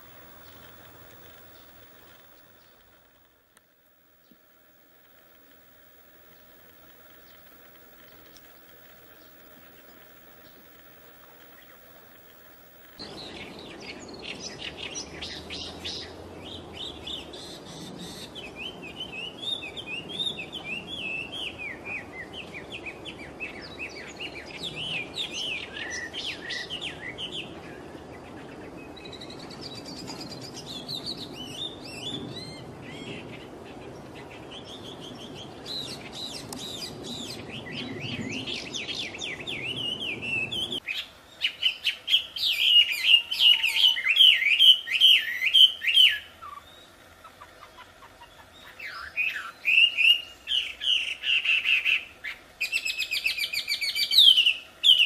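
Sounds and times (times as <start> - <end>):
bird singing chattering whistles: 34.5 - 46.9.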